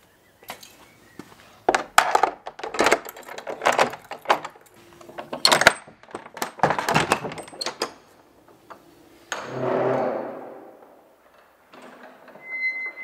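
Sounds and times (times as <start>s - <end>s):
metal door latch clanking: 1.8s - 8.2s.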